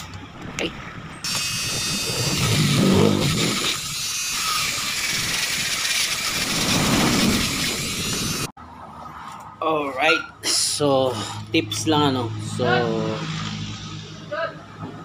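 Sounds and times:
rotary tool whining: 0:01.2 - 0:08.5
bit grinding metal: 0:01.3 - 0:08.5.

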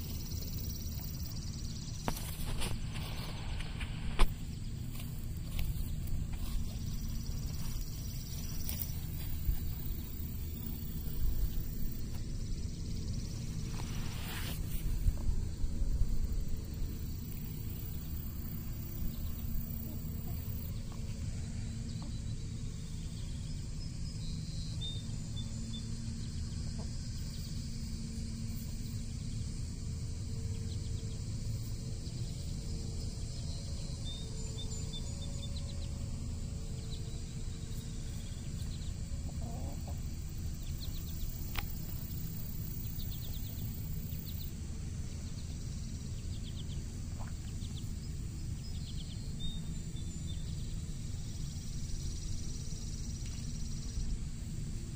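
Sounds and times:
small birds chirping: 0:00.0 - 0:54.5
steady low rumble: 0:00.0 - 0:54.9
chickens clucking softly: 0:38.6 - 0:41.9.

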